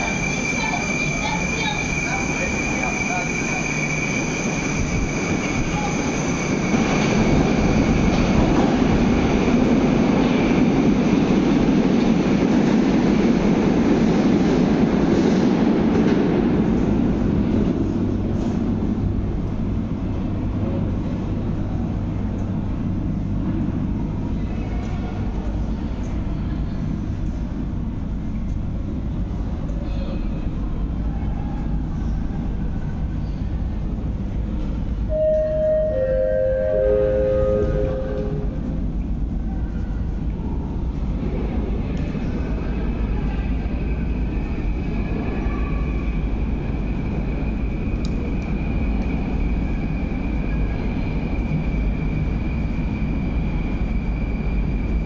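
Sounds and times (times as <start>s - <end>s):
metro train running: 0.0s - 55.0s
high whine: 35.1s - 38.8s.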